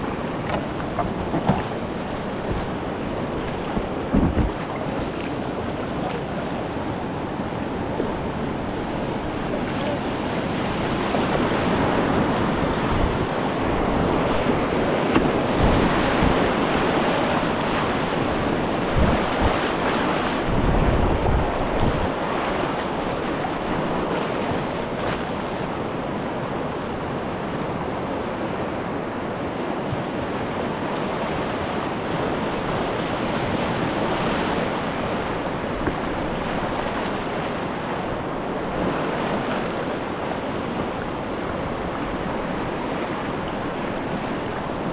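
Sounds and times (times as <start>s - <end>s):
wind buffeting microphone: 0.0s - 25.5s
whitewater rushing: 0.0s - 27.4s.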